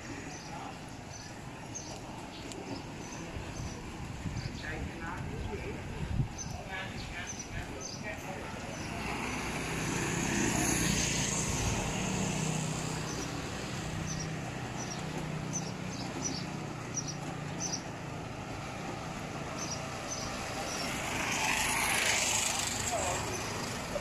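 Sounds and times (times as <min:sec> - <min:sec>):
background traffic noise: 0:00.0 - 0:24.0
vehicle engine humming: 0:06.9 - 0:24.0.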